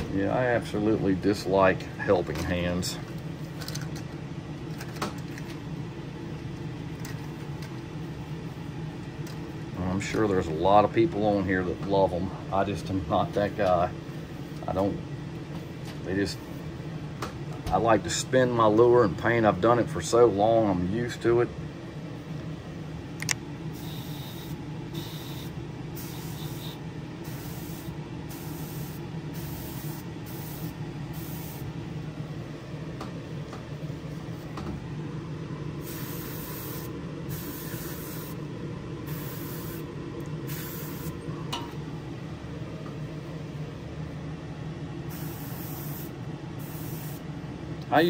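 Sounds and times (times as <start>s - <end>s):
exhaust fan hum: 0.0s - 48.0s
airbrush spraying hiss: 23.8s - 31.7s, 35.8s - 38.4s, 39.1s - 41.2s, 45.1s - 47.2s.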